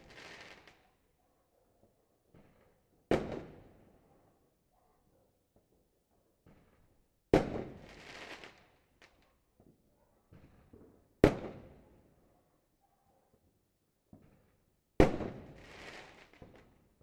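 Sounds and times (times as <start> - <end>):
faint distant firecracker pops: 6.4 - 11.9, 14.1 - 16.8.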